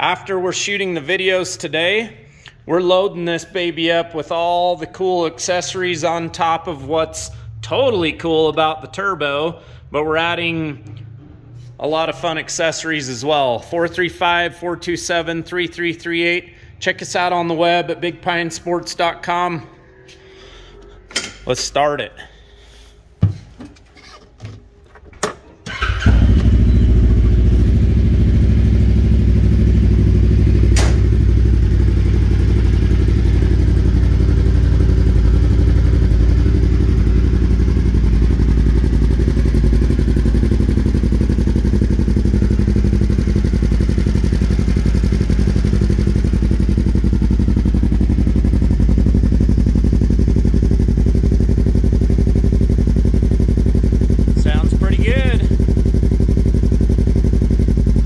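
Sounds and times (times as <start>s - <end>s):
engine starting and idling: 24.8s - 32.3s.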